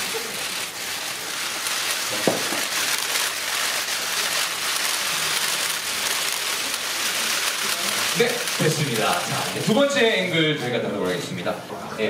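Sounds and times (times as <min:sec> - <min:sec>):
camera shutters clicking: 0:00.5 - 0:09.7
loud knock: 0:02.2 - 0:02.7.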